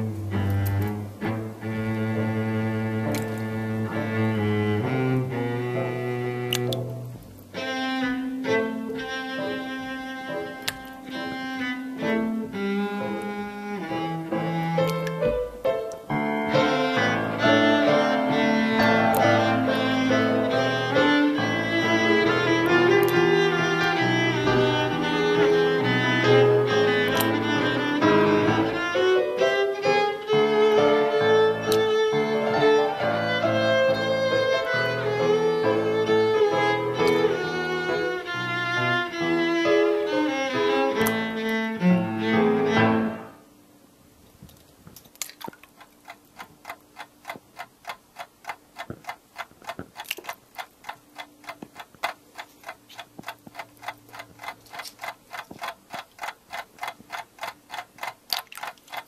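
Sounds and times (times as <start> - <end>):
violin and cello music: 0.0 - 43.4
clock ticking: 45.5 - 59.0.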